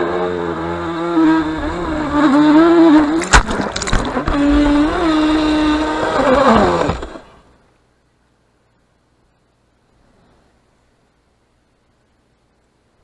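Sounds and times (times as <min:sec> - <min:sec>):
rc boat motor running: 0:00.0 - 0:07.5
water splashing: 0:02.0 - 0:05.8
hull slapping water: 0:03.0 - 0:05.2.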